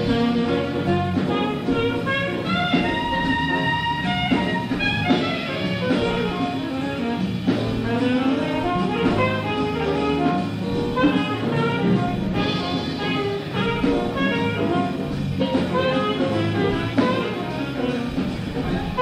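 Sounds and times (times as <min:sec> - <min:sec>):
jazz big band playing: 0:00.0 - 0:19.0.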